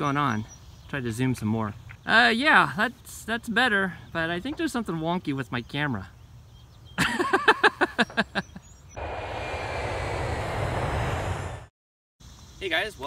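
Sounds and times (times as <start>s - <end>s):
rapid pitched pulses: 9.0s - 11.7s
steady rushing noise: 9.0s - 11.7s.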